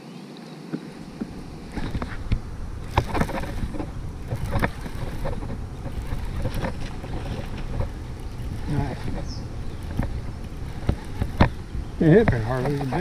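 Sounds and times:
knocks and clatter: 1.2s - 13.0s
low rumble: 1.3s - 13.0s.

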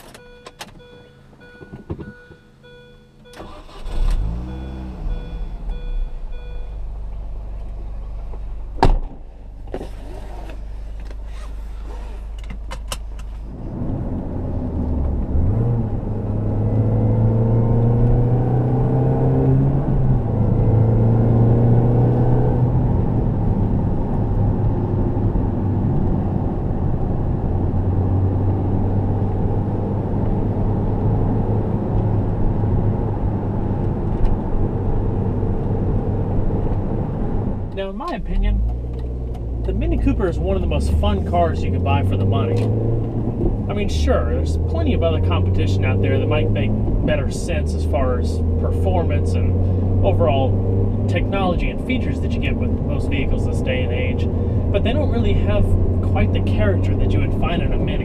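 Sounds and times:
sharp clicks in car cabin: 0.0s - 0.8s
car engine: 0.0s - 58.0s.

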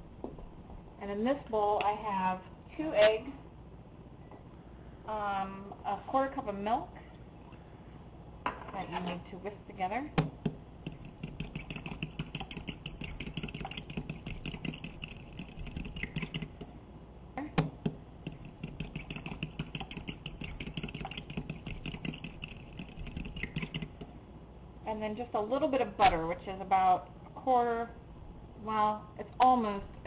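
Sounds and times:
fork beating eggs in a bowl: 10.8s - 16.7s, 18.2s - 24.1s.

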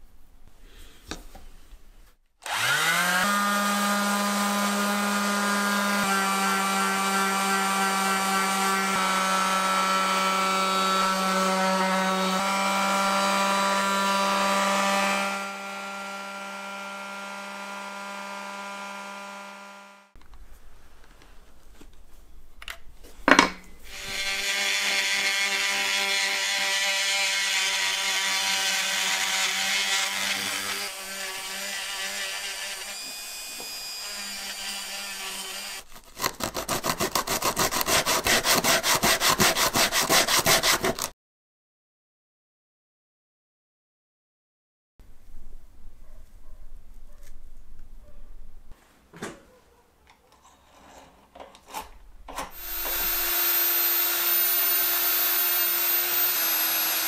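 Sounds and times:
power tool motor running: 2.4s - 6.2s, 12.4s - 20.1s, 23.9s - 35.8s, 52.5s - 57.0s
tool grinding against work: 23.9s - 41.1s, 50.5s - 57.0s.

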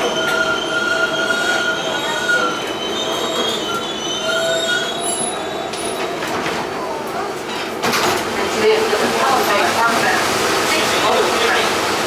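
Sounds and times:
train wheels squealing on rails: 0.0s - 6.4s
subway car rumble: 0.0s - 12.0s.

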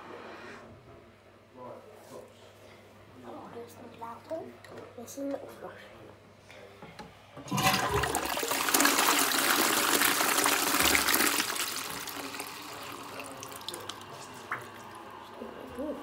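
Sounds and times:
toilet flushing: 7.4s - 16.0s.

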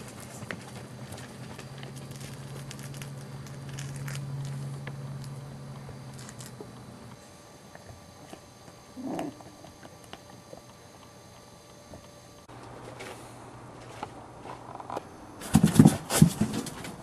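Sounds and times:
steady low hum: 0.0s - 17.0s
small crackles and clicks: 1.2s - 5.4s.

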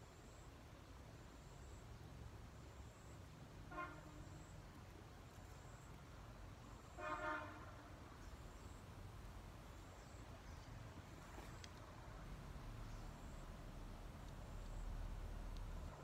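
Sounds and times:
faint low background rumble: 0.0s - 16.0s
vehicle horn toot: 3.7s - 4.3s, 7.0s - 7.8s.

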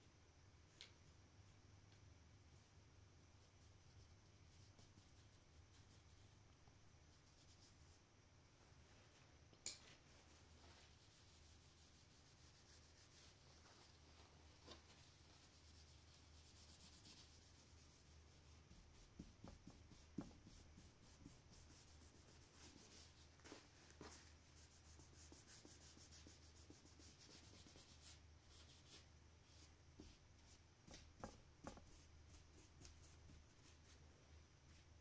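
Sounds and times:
cloth rubbing on painting: 7.0s - 8.0s, 10.0s - 35.0s.

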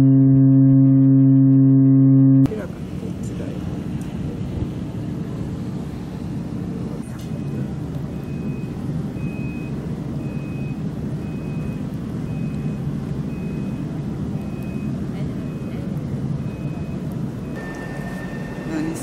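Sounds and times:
reversing alarm beeping: 0.0s - 2.5s, 7.2s - 15.8s, 16.4s - 19.0s
steady low rumble: 0.0s - 19.0s.

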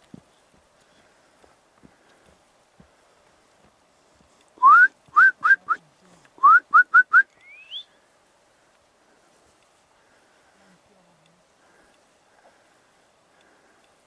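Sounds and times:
person whistling: 4.6s - 5.8s, 6.4s - 7.9s.

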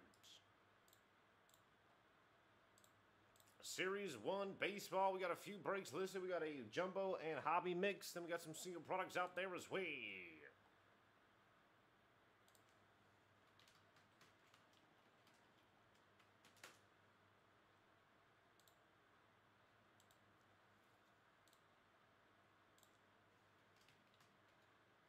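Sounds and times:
keyboard and mouse clicks: 13.4s - 16.9s, 18.6s - 18.8s, 23.6s - 24.8s.

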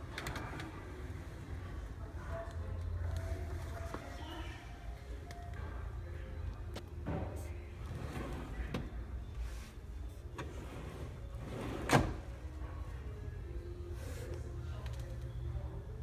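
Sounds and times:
drawer sliding shut: 10.4s - 12.3s.

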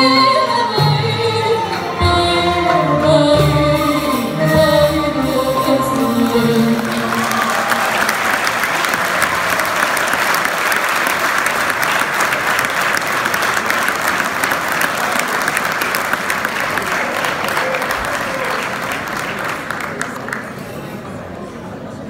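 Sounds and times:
orchestra and singer: 0.0s - 9.0s
audience applauding: 6.6s - 20.9s.

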